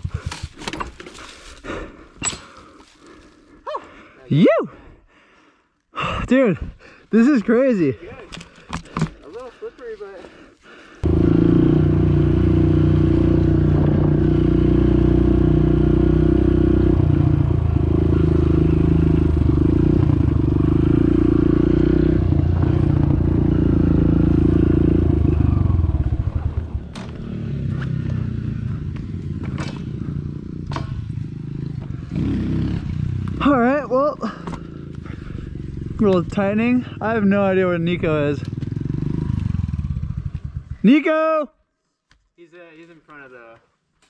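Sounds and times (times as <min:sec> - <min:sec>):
motorbike engine running: 0:11.0 - 0:40.8.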